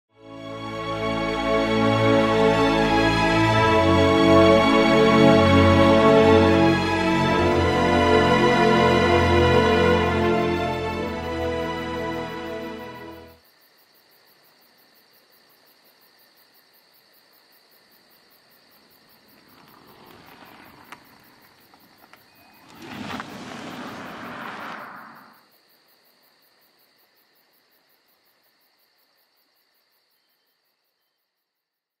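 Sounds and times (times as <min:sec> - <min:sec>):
insect chirring: 0:13.4 - 0:32.0
car tyre and road noise: 0:19.1 - 0:25.4.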